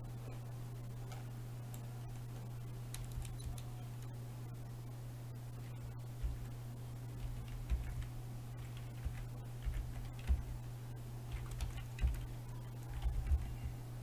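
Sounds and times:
steady low hum: 0.0s - 14.0s
computer keyboard typing: 2.9s - 3.7s, 6.2s - 6.5s, 7.2s - 10.6s, 11.3s - 13.8s.

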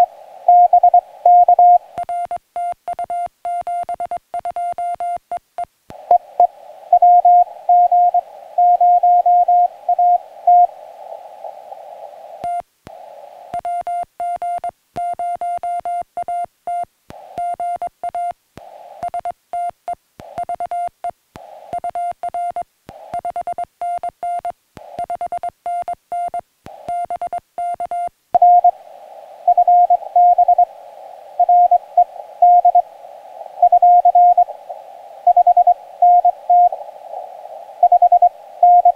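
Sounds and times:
radio receiver hiss: 0.0s - 2.1s, 5.7s - 15.6s, 17.0s - 38.9s
morse code tone: 6.1s - 10.7s, 23.2s - 28.8s, 29.4s - 30.7s, 31.4s - 32.9s, 33.6s - 34.5s, 35.3s - 36.8s, 37.8s - 38.9s.

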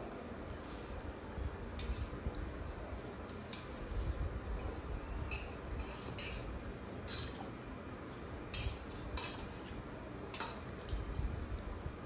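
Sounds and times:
utensils clinking on metal bowls: 4.6s - 7.5s.

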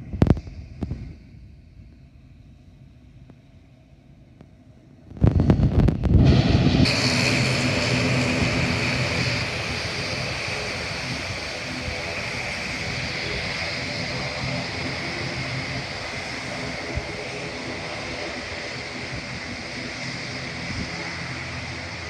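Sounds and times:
turboprop engines droning: 0.0s - 22.0s
wind buffeting microphone: 5.1s - 22.0s.

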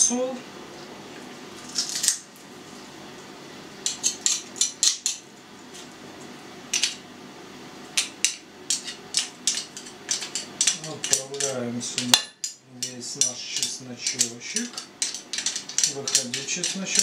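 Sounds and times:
utensil scraping metal garlic press: 8.7s - 12.1s, 12.8s - 17.0s.

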